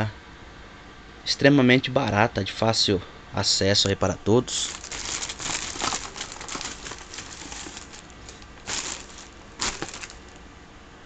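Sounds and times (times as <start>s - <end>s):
plastic bag rustling and crinkling: 4.5s - 10.4s.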